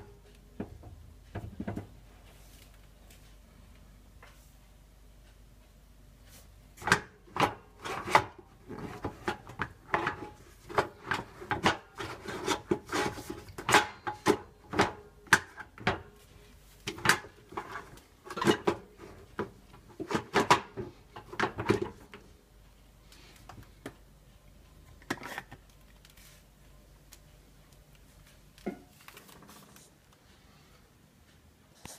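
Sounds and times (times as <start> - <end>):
wire rack scraping: 6.9 - 14.9.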